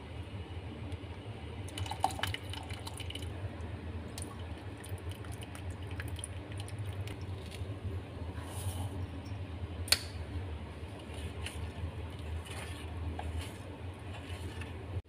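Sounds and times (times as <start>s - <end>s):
steady low hum: 0.0s - 15.0s
liquid dripping: 1.7s - 3.3s, 4.1s - 7.7s.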